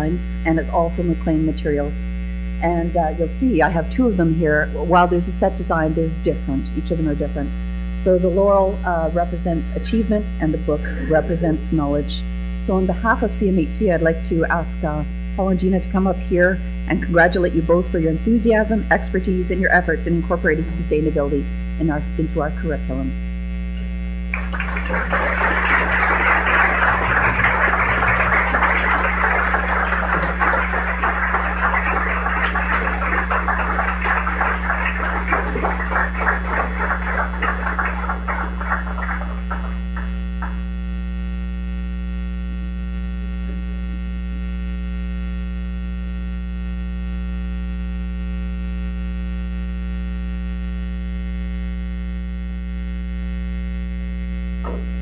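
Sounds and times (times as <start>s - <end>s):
electrical mains hum: 0.0s - 55.0s
audience applauding: 24.3s - 40.6s.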